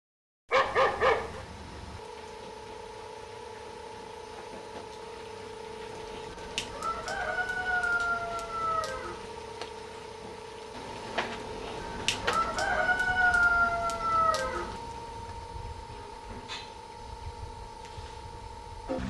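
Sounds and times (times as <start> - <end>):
steady hum: 0.5 - 19.0
rooster crowing: 6.6 - 9.5, 11.7 - 15.2.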